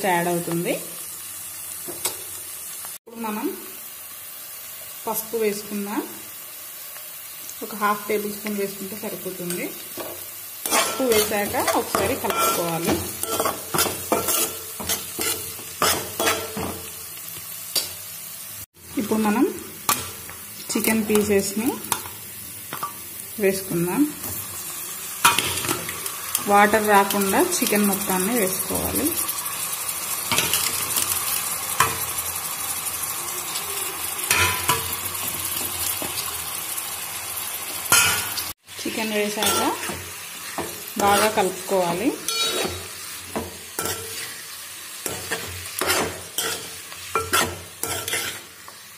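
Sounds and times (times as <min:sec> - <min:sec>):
onions sizzling in oil: 0:00.0 - 0:48.9
spatula scraping metal pan: 0:10.6 - 0:16.6, 0:42.2 - 0:44.4, 0:45.1 - 0:48.5.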